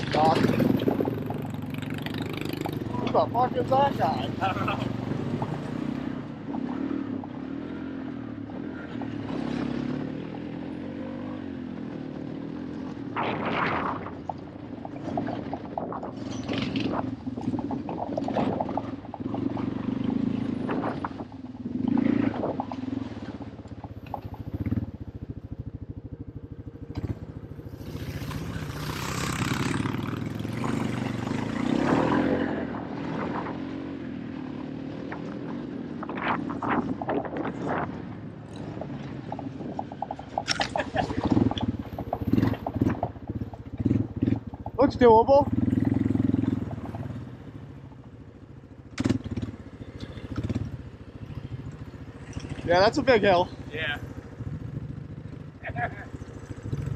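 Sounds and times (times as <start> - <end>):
small vehicle engine revving: 0.0 - 14.2, 26.8 - 48.0, 48.9 - 56.9.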